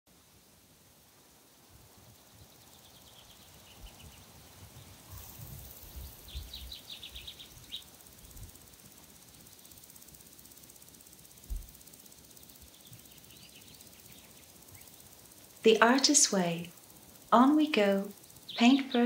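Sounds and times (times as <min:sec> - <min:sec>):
rapid high chirps: 0:05.1 - 0:19.0.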